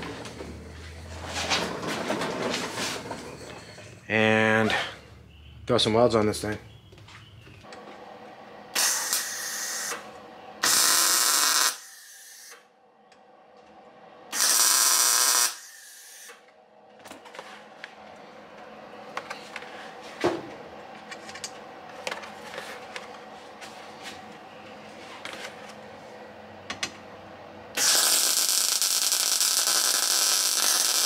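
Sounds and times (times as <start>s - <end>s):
welding arc crackling: 8.8s - 10.0s, 10.6s - 12.6s, 14.3s - 16.3s, 27.7s - 31.0s.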